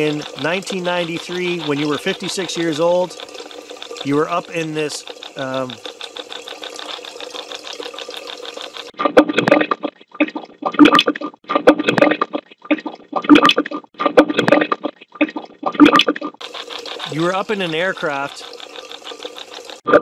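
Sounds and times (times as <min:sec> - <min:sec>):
choppy muffled garbled bursts: 0:00.0 - 0:09.0, 0:14.6 - 0:19.9
running water: 0:00.0 - 0:11.0, 0:14.5 - 0:19.9.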